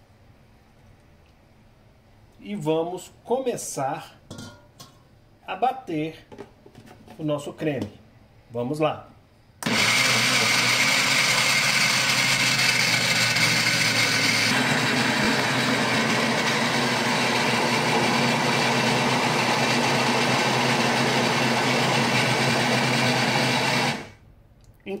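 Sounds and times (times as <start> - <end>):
blender motor running: 9.6 - 24.2.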